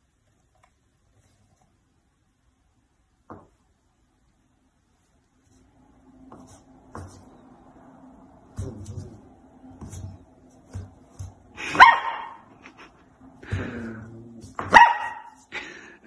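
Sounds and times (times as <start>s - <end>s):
puppy barking: 11.7s - 12.5s, 14.6s - 15.4s.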